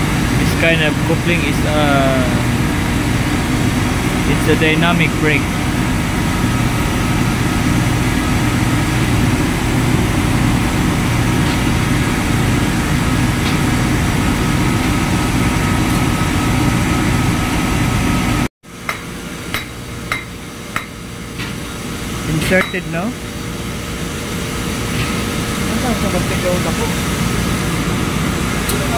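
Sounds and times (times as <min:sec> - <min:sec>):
engine room machinery drone: 0:00.0 - 0:28.9.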